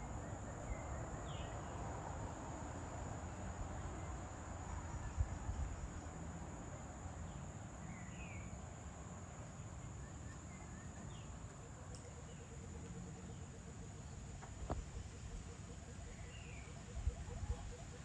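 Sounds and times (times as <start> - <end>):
insects trilling: 0.0 - 18.0
bird chirps: 9.9 - 18.0.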